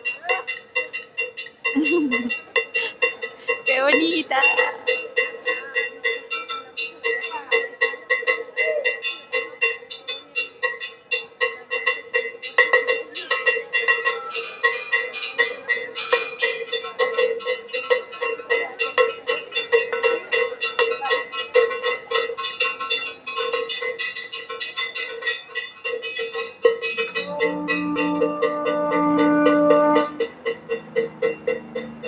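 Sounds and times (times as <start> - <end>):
metal bell struck rhythmically: 0.0 - 32.0
long held instrument note: 27.1 - 30.3.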